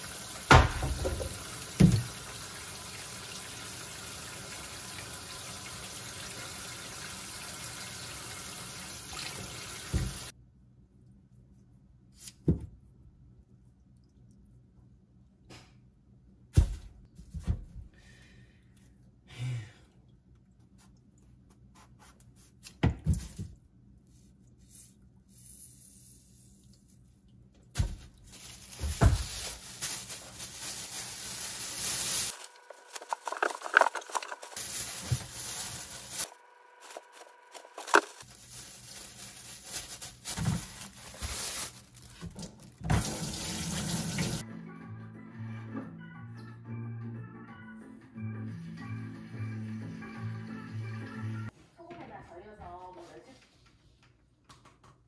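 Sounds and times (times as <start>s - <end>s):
plastic bin bag rustling: 27.8s - 44.4s.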